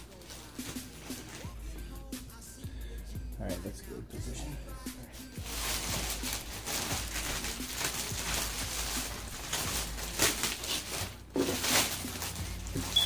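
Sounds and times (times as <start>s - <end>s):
plastic bag crinkling: 0.0s - 1.6s, 5.2s - 13.0s.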